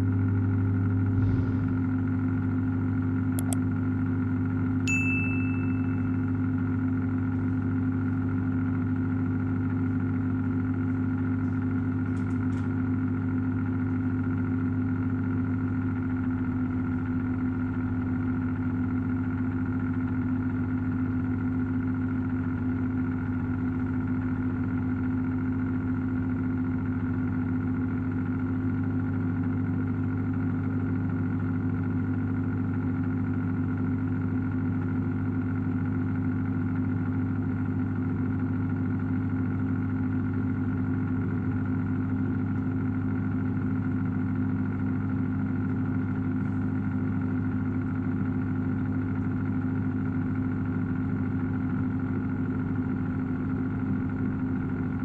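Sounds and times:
cooling fan whirring: 0.0 - 16.2, 33.3 - 55.0
microwave oven humming: 0.0 - 55.0.

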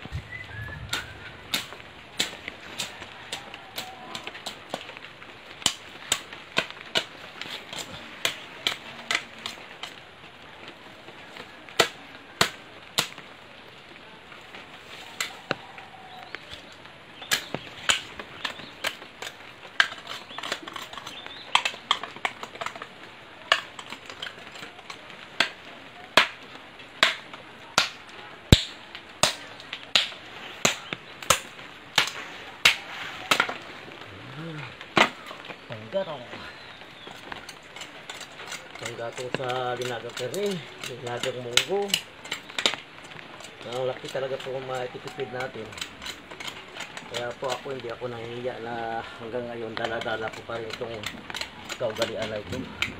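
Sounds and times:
machete chopping wood: 0.9 - 3.4, 11.8 - 13.2, 26.2 - 26.4, 27.0 - 33.6.

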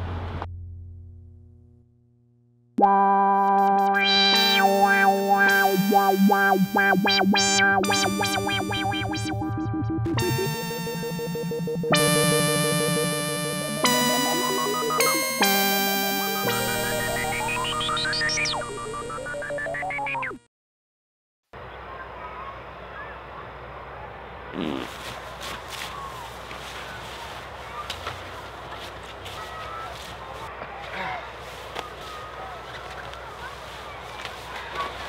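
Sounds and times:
low hum: 0.0 - 13.8
synthesizer music: 2.8 - 20.4.

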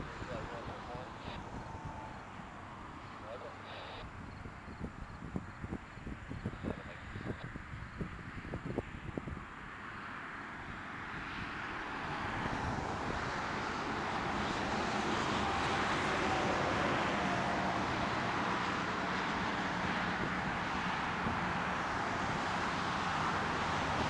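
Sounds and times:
faint whine: 0.0 - 7.6
traffic engine rumble: 0.0 - 24.0.

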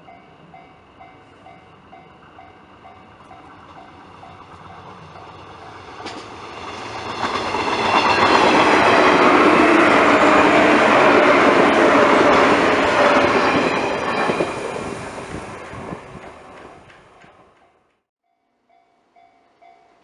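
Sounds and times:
train whining tones: 0.0 - 17.8
train wheels clattering over rail joints: 5.2 - 8.8.

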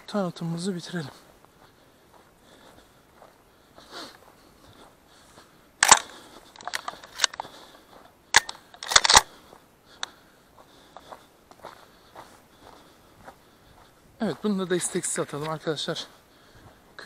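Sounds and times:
shotgun mechanical clicks: 5.8 - 7.4, 8.3 - 9.3.

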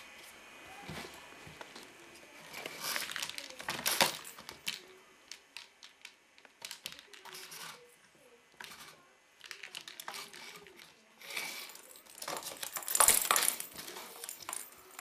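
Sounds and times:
plastic cat toy clicking and rattling: 2.9 - 7.8, 8.6 - 11.0.

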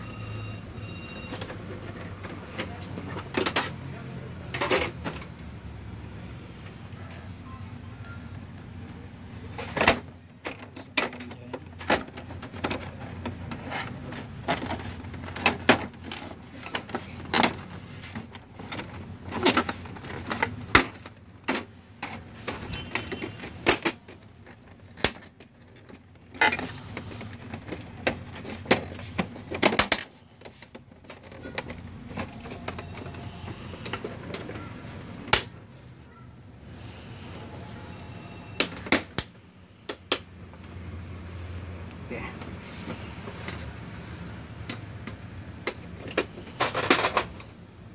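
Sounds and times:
plastic parts clicking and knocking: 0.8 - 5.6, 8.3 - 35.6, 38.4 - 41.0, 44.5 - 47.9.

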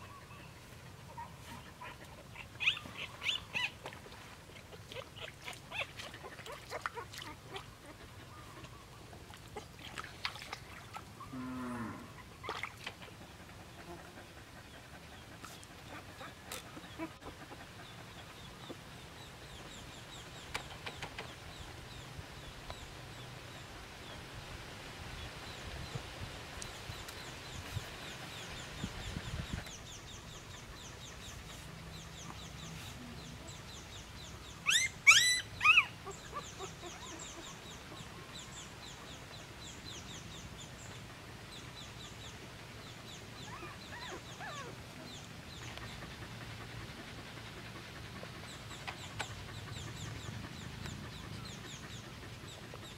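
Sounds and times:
high-pitched animal calls: 34.6 - 37.2.

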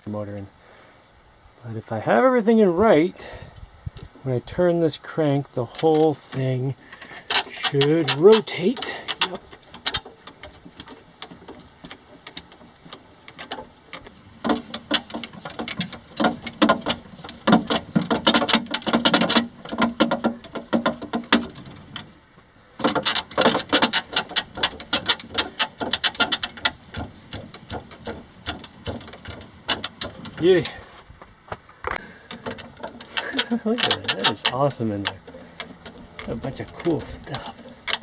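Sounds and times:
hand crank chain clatter: 7.0 - 22.0, 22.8 - 30.8, 32.2 - 38.0.

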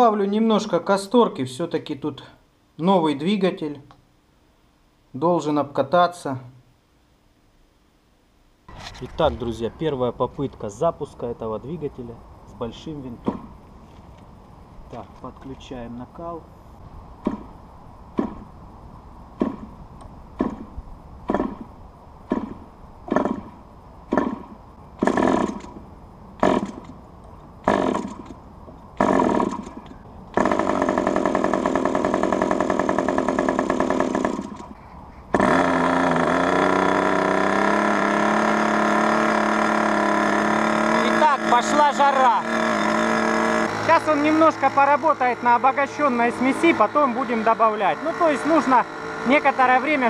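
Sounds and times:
engine starting pops: 8.7 - 10.5, 19.4 - 19.7, 20.4 - 21.7, 22.3 - 25.8, 26.4 - 27.0, 27.6 - 28.4, 29.0 - 36.3
model aircraft engine running: 30.4 - 34.7, 40.6 - 50.0.

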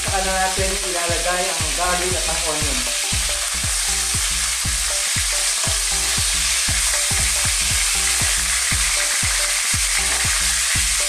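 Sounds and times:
pork frying in hot oil: 0.0 - 11.0.

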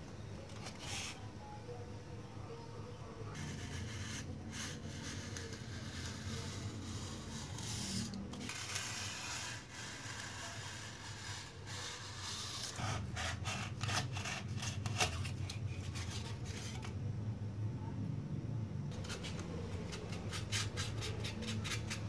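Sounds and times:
knife sawing through styrofoam: 3.4 - 15.2, 19.0 - 22.0.

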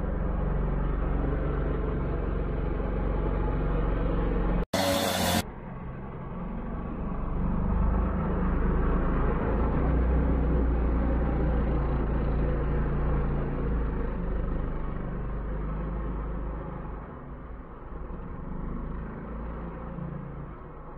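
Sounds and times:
small quad bike engine: 0.0 - 20.9.

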